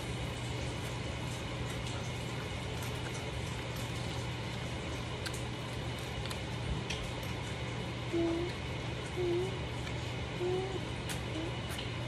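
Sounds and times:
indoor hum and hiss: 0:00.0 - 0:12.0.

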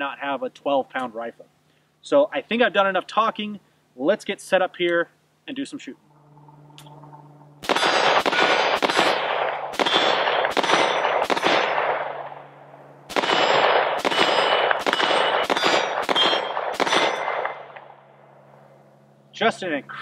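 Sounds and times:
rifle shots echoing: 0:07.6 - 0:17.9.

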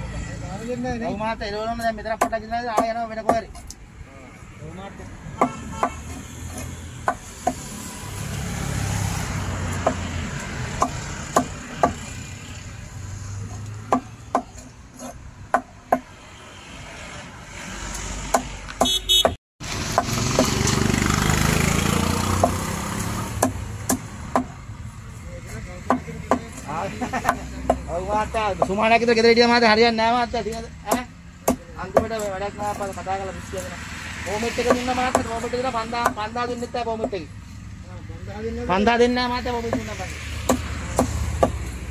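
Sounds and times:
road traffic rumble: 0:00.0 - 0:41.9
knife chopping fish on wooden block: 0:05.4 - 0:07.7, 0:09.7 - 0:10.1, 0:10.7 - 0:12.0, 0:13.8 - 0:16.1, 0:22.3 - 0:22.6, 0:23.4 - 0:24.6, 0:39.7 - 0:41.6.

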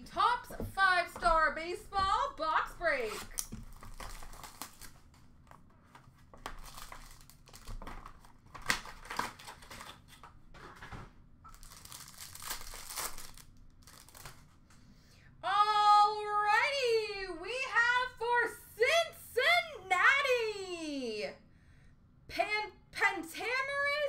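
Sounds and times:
plastic packaging crinkling: 0:03.2 - 0:10.8, 0:11.5 - 0:14.6.

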